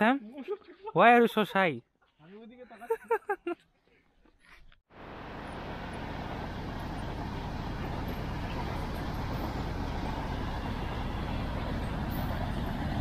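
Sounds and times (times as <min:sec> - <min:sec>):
freight train rumbling past: 0:05.0 - 0:13.0.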